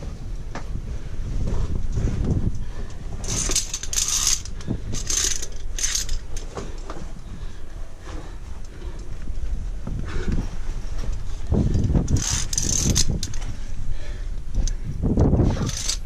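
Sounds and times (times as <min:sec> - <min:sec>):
carabiners clinking on steel cable: 0:03.2 - 0:06.9, 0:11.2 - 0:13.7, 0:15.4 - 0:16.0.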